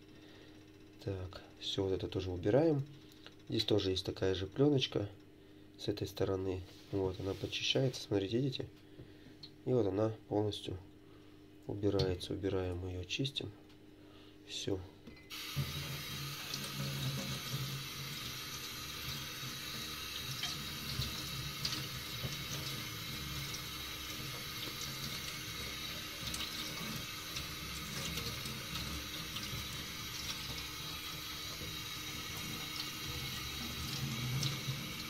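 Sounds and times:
tap water running into sink: 15.3 - 35.0.

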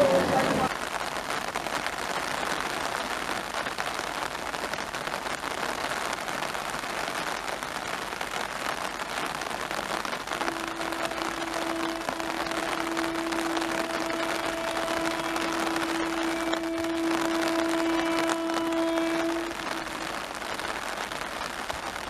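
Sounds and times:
rain falling: 0.0 - 22.0
faint steady tone: 10.4 - 21.0.

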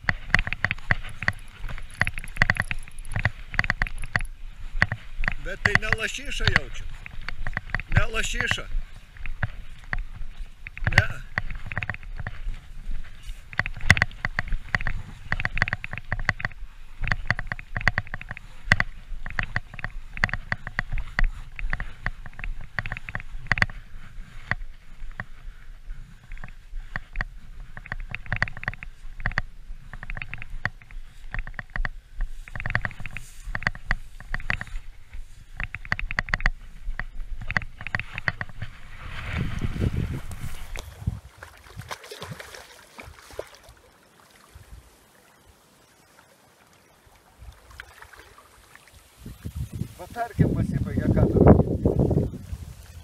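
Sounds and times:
camera handling rumble: 0.0 - 8.5, 9.2 - 23.8, 26.2 - 38.8, 39.4 - 41.2
wind noise on camera: 0.0 - 42.4, 49.2 - 53.0
fishing reel clicking: 0.3 - 4.4.

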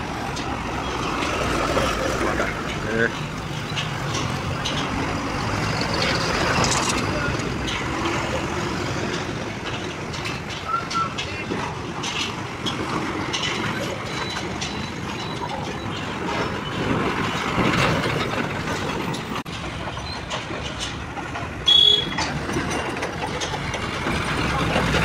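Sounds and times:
diesel trucks passing: 0.0 - 25.0
loud high-pitched beep: 21.7 - 22.2.

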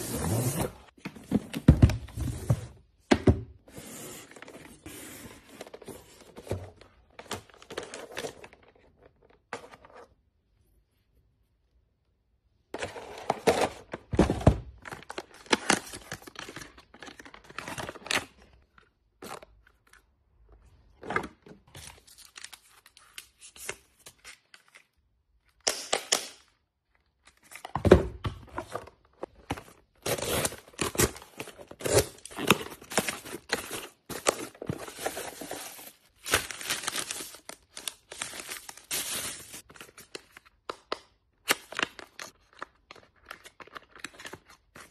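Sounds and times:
bubble wrap rustling and crinkling: 30.2 - 40.2.

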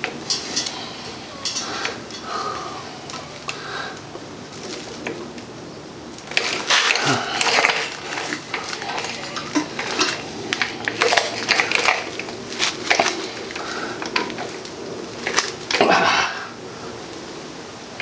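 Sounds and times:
metallic wire clinks and scrapes: 0.2 - 2.3.

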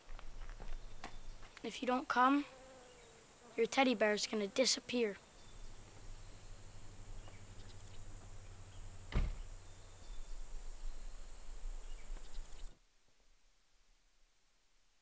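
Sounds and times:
low hum: 5.4 - 12.7
heavy thump: 9.1 - 9.5.

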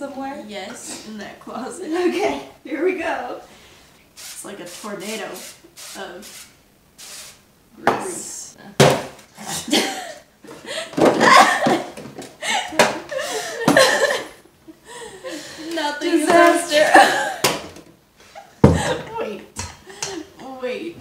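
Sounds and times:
women laughing and talking: 15.2 - 17.4, 18.6 - 20.3.

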